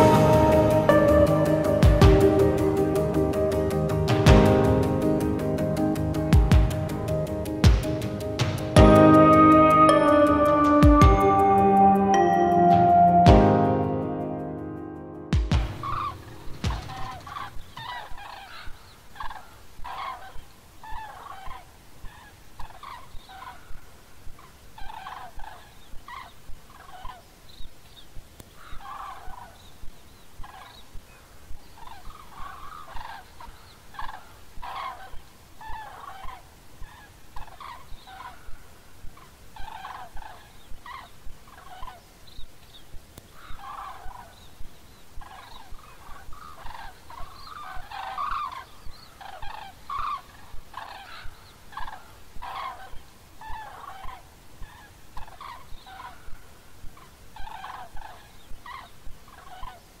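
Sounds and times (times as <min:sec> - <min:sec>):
cranes bugling calls: 0:33.9 - 0:38.5, 0:43.4 - 0:44.3, 0:46.3 - 0:56.3, 0:57.4 - 0:59.8.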